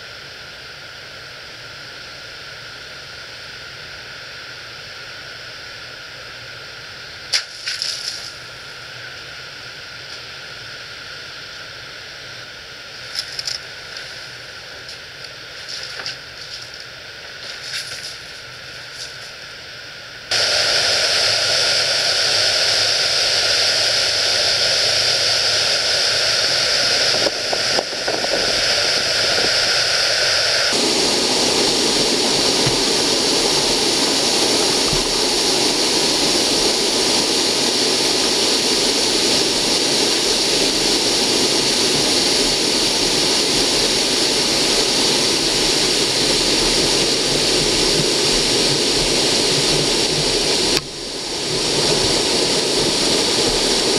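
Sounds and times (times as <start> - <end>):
water rushing over a spillway: 20.3 - 53.9.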